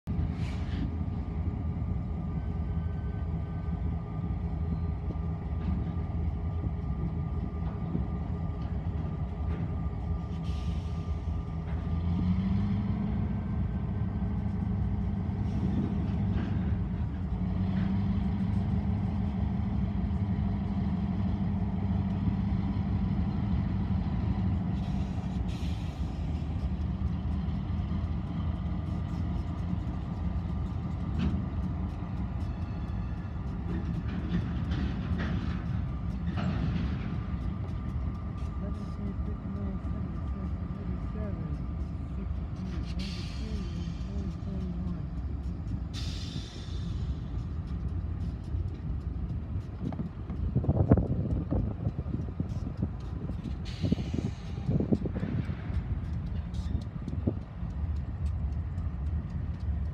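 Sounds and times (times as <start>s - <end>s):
diesel locomotive engine drone: 0.0s - 59.9s
train rolling rumble: 0.0s - 59.9s.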